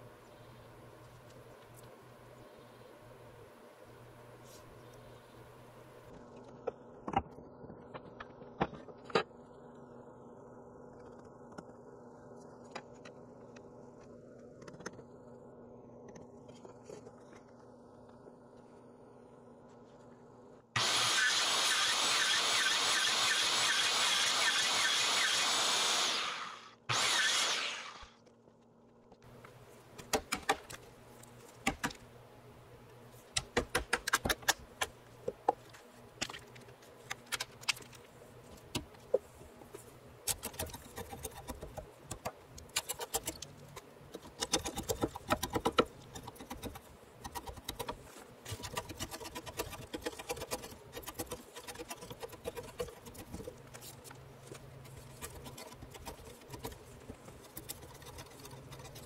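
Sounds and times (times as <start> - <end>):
circular saw cutting: 20.8 - 28.2.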